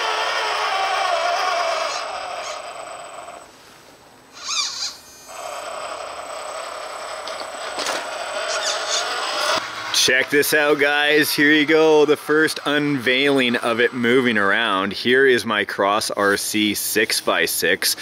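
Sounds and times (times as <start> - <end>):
electric motor and gearbox whining: 0.0 - 3.5, 4.4 - 15.2
high chirping: 8.4 - 9.2.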